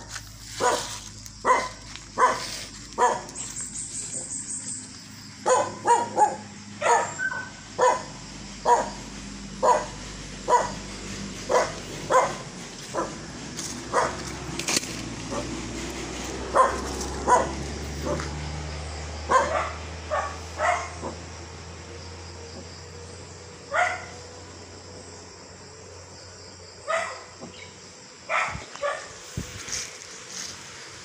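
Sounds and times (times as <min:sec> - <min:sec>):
dog barking: 0:00.6 - 0:03.4, 0:05.4 - 0:09.0, 0:09.6 - 0:10.8, 0:11.5 - 0:13.2, 0:13.9 - 0:14.2, 0:16.5 - 0:18.3, 0:19.3 - 0:21.2, 0:23.7 - 0:24.2, 0:26.8 - 0:27.4, 0:28.3 - 0:29.1.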